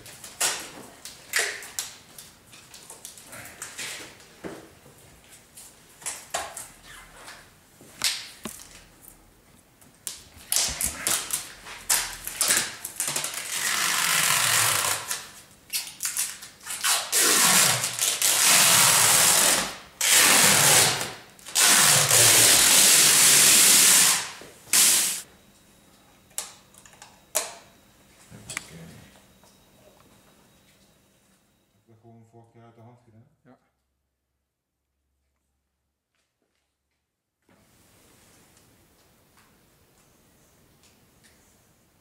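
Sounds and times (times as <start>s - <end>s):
plastic film ripping off: 10.5s - 25.2s.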